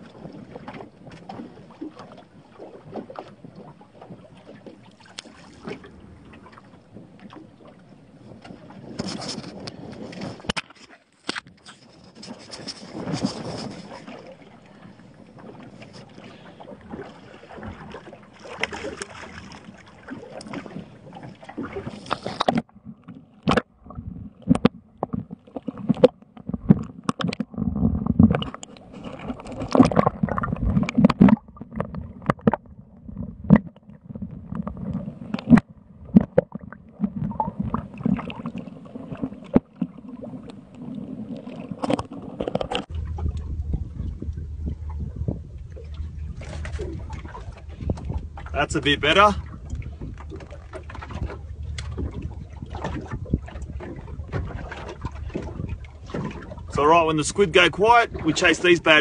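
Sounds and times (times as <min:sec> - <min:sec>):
water sloshing and gurgling: 0:00.0 - 0:59.0
low surging splashes: 0:12.7 - 0:22.4, 0:42.8 - 0:59.0.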